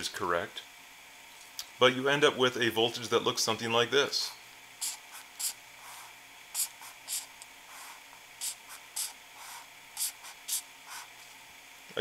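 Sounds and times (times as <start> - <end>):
marker scratching on paper: 4.8 - 11.1.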